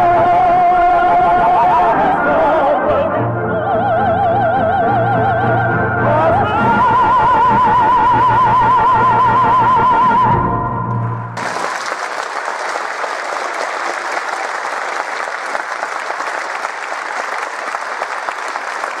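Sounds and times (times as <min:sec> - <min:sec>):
soprano and tenor singing: 0:00.0 - 0:10.7
audience applause: 0:11.4 - 0:19.0.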